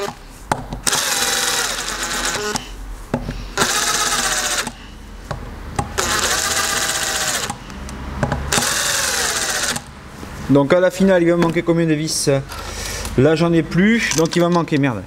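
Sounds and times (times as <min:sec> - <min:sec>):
impact wrench whining: 0:00.0 - 0:10.0.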